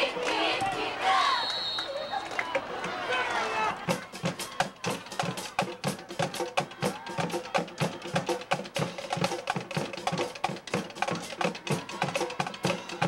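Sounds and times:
drums playing fast beat: 0:03.7 - 0:13.0.

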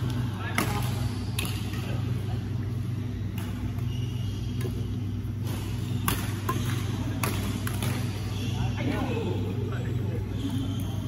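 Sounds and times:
rackets striking shuttlecock: 0:00.0 - 0:02.0, 0:03.2 - 0:08.4
low hum in hall: 0:00.0 - 0:11.0.

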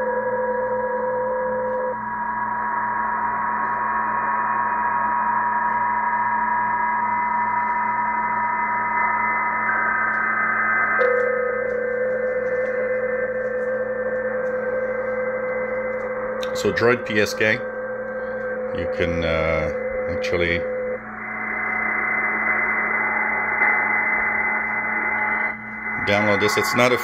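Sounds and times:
digital signal tones: 0:11.0 - 0:21.7, 0:22.7 - 0:27.0
radio band hiss: 0:16.4 - 0:17.8, 0:18.4 - 0:27.0.

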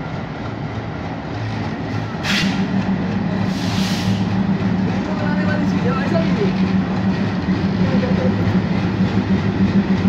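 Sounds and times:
locomotive engine hum: 0:00.0 - 0:10.0
short hisses: 0:03.5 - 0:04.3.

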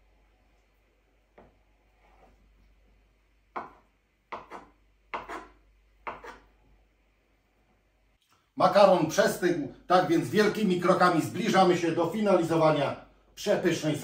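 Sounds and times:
knife chopping on wooden board: 0:03.5 - 0:06.5.

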